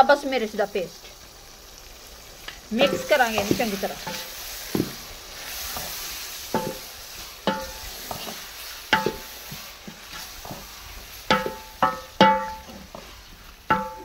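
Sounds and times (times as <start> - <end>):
food sizzling in a pot: 0.0 - 14.0
spoon knocking on metal pot: 7.5 - 7.8, 9.0 - 9.3, 11.3 - 12.7, 13.7 - 14.0.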